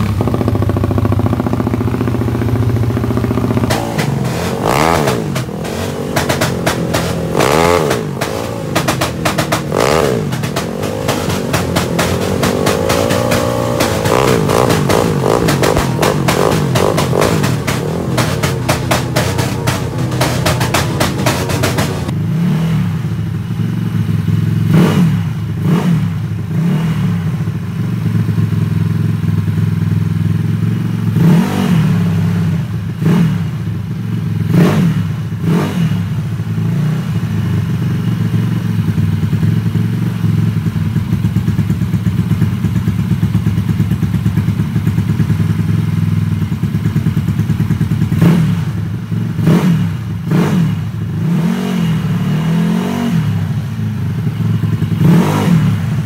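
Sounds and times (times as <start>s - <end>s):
scooter engine idling: 0.0s - 22.3s, 23.0s - 26.5s, 27.2s - 31.2s, 36.1s - 51.2s, 53.3s - 56.0s
engine revving: 0.0s - 23.0s, 24.7s - 27.3s, 31.1s - 33.4s, 34.5s - 37.0s, 48.1s - 56.0s.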